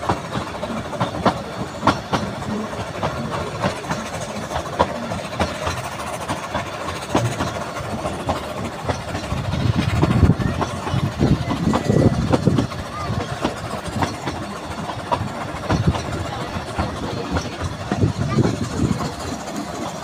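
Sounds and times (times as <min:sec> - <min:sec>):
low train rumble: 0:00.0 - 0:20.0
train wheels clattering on rails: 0:00.0 - 0:20.0.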